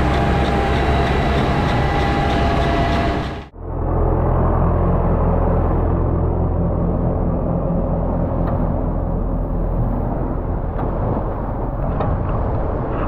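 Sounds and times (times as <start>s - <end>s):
diesel tractor driving past: 0.0s - 8.9s
towed machine rumbling: 0.0s - 13.0s.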